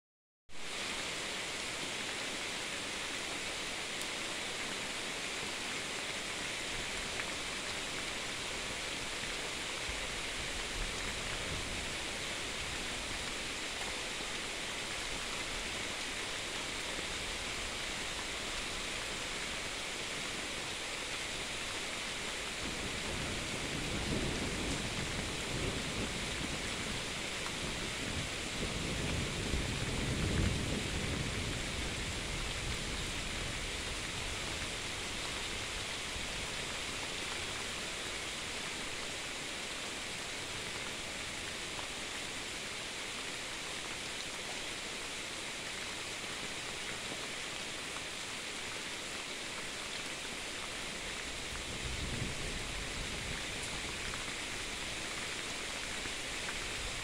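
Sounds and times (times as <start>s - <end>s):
steady rain falling: 0.5s - 57.0s
thunder rumbling: 22.6s - 33.9s.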